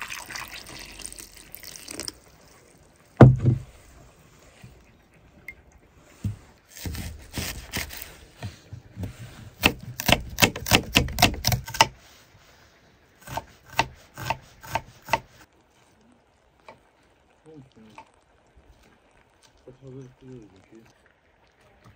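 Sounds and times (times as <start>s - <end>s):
knife scraping on cutting board: 6.7s - 9.4s
knife chopping on wooden board: 6.8s - 8.1s, 9.0s - 11.9s, 13.2s - 15.3s.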